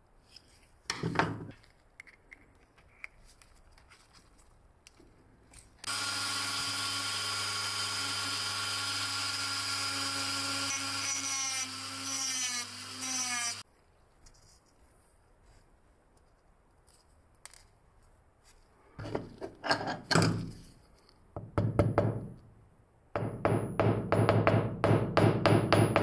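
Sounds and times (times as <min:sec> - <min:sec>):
cut-off disc cutting wood: 0:05.8 - 0:13.6
rotary tool whining: 0:05.8 - 0:13.6.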